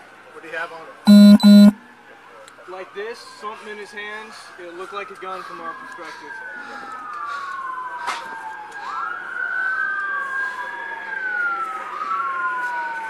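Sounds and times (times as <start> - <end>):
emergency sirens wailing: 4.3 - 13.0.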